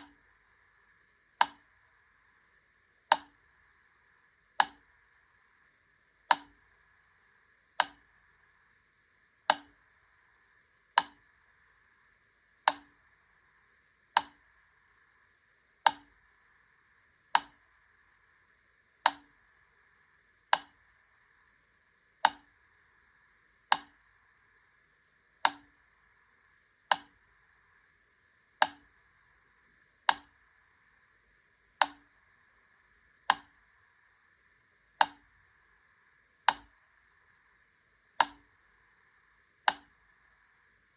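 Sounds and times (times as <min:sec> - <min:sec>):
faint steady hiss: 0:00.0 - 0:40.9
metronome ticking: 0:01.4 - 0:01.7, 0:03.1 - 0:03.4, 0:04.6 - 0:04.9, 0:06.3 - 0:06.7, 0:09.5 - 0:09.8, 0:11.0 - 0:11.2, 0:12.6 - 0:13.0, 0:14.1 - 0:14.5, 0:15.8 - 0:16.2, 0:20.5 - 0:20.8, 0:22.2 - 0:22.5, 0:23.7 - 0:24.0, 0:25.4 - 0:25.8, 0:28.6 - 0:28.9, 0:30.0 - 0:30.4, 0:31.8 - 0:32.1, 0:35.0 - 0:35.4, 0:36.4 - 0:36.8, 0:38.2 - 0:38.5, 0:39.6 - 0:40.0.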